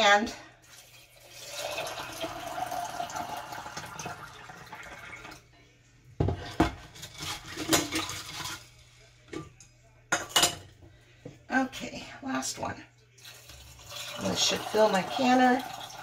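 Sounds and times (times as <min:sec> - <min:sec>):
water pouring into glass jar: 0:00.7 - 0:05.4, 0:13.2 - 0:16.0.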